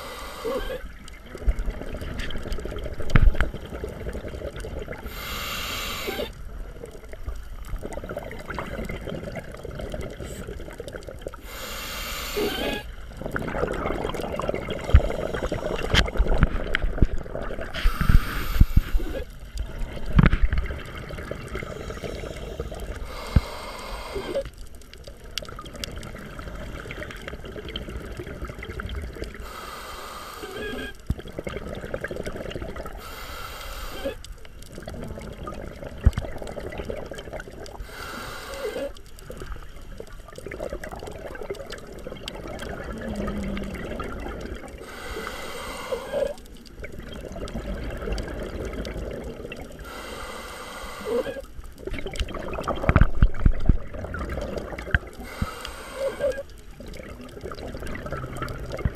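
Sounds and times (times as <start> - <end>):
regulator hissing inhale: 0.0 - 0.9, 5.0 - 6.4, 11.4 - 12.9, 15.0 - 16.0, 17.7 - 19.3, 21.6 - 24.5, 29.4 - 31.0, 33.0 - 34.3, 37.8 - 39.1, 44.7 - 46.4, 49.8 - 51.5, 55.2 - 56.5
exhaled bubbles: 0.0 - 58.9.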